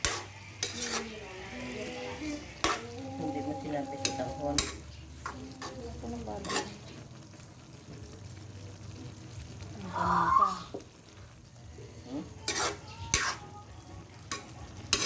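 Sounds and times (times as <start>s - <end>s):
ladle stirring broth: 0.0s - 7.2s, 12.4s - 13.5s.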